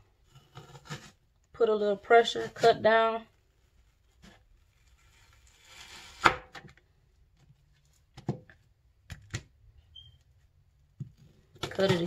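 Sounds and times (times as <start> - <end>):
knife cutting onion: 5.1 - 6.7.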